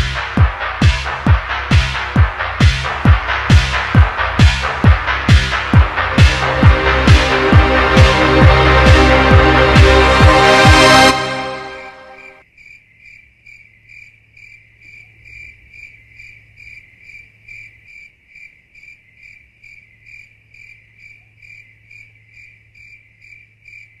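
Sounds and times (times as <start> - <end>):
cricket chirping: 12.4 - 24.0.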